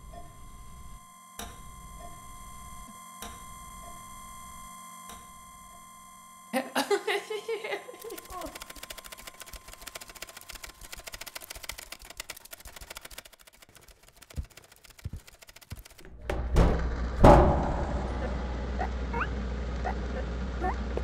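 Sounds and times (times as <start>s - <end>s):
low machine hum: 0.0s - 9.8s, 16.1s - 21.0s
rapid mechanical ticking: 8.0s - 20.6s
heavy knocks: 16.0s - 19.1s
short rising squeaks: 17.9s - 20.8s.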